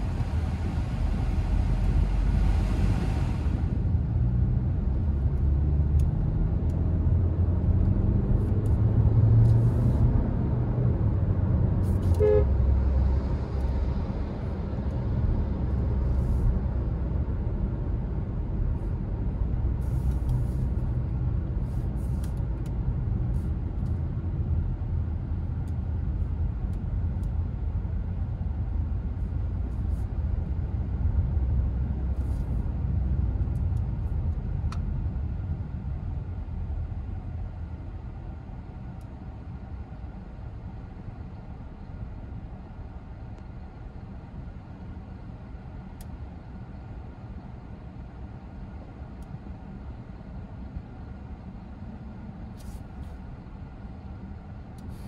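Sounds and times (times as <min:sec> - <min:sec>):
engine and road rumble: 0:00.0 - 0:55.0
car horn toot: 0:12.1 - 0:12.6.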